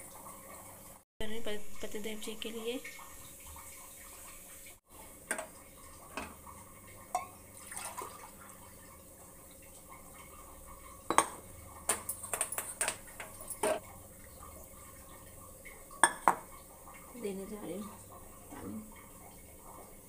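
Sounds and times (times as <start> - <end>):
saucepan and utensils clinking: 7.1 - 7.4, 11.1 - 13.8.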